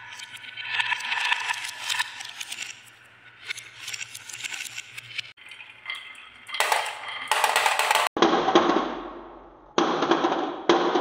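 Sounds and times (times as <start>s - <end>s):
glass marbles rolling and clinking: 5.8s - 8.1s
marbles rattling down wooden track: 6.5s - 8.2s.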